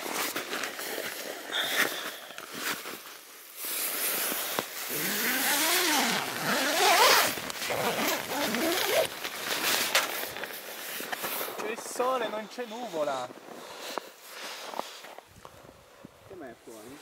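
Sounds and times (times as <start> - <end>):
tent zipper being drawn open: 0.0 - 11.6.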